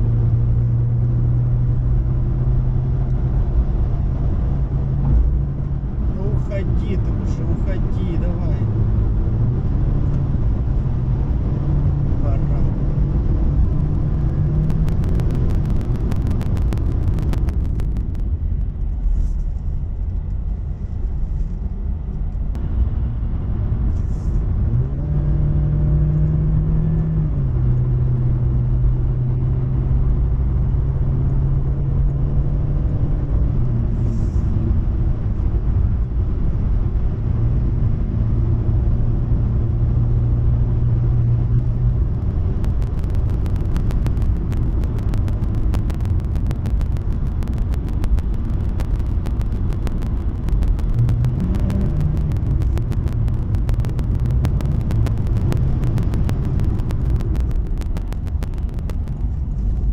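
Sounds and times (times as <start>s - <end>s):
car engine hum: 0.0s - 59.9s
road rumble: 0.0s - 59.9s.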